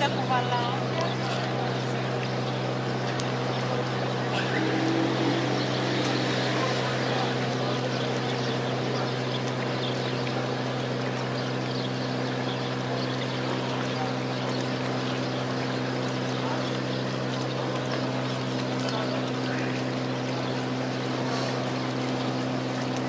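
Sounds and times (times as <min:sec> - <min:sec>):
ferry engine droning: 0:00.8 - 0:10.7
water rushing: 0:04.3 - 0:08.9.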